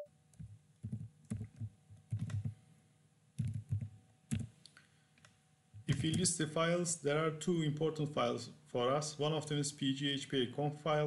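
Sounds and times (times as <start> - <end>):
computer keyboard typing: 0.8 - 2.5, 3.4 - 4.5.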